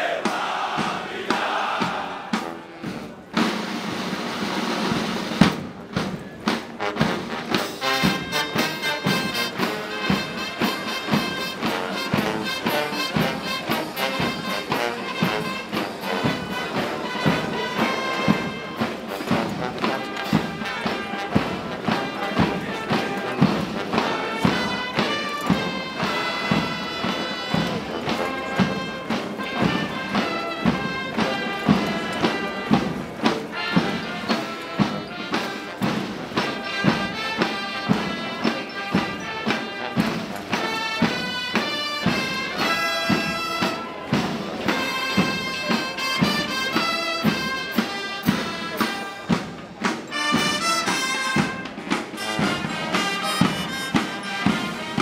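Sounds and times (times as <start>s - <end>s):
crowd shouting: 0.0s - 2.6s
brass band playing a march: 0.0s - 55.0s.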